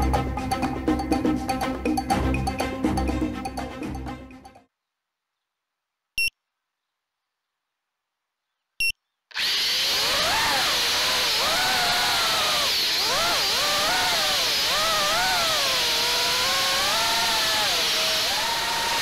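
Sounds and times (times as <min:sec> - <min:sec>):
drone motors whining: 0:09.3 - 0:19.0.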